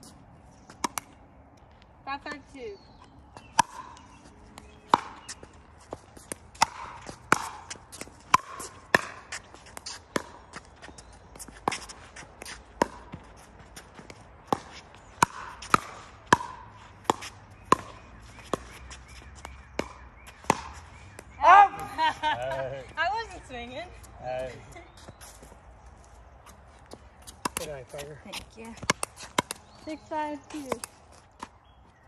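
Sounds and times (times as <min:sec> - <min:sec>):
shoes on hard court: 0:03.0 - 0:32.0
ball bouncing: 0:03.4 - 0:13.3, 0:14.0 - 0:23.4, 0:26.9 - 0:31.5.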